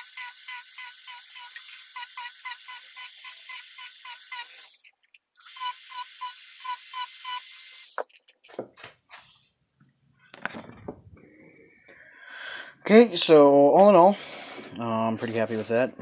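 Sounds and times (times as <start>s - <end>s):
rotary tool sanding foam: 0.0s - 4.9s
handling knocks and clicks: 8.0s - 9.2s.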